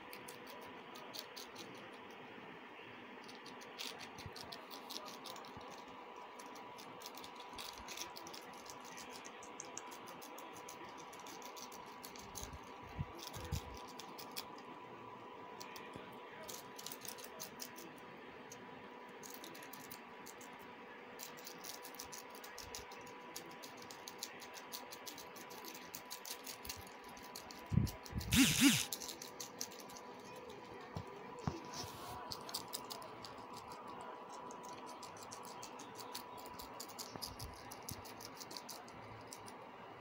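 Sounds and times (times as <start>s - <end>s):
guinea pigs crunching lettuce: 0.0s - 40.0s
steady hum: 27.6s - 29.0s.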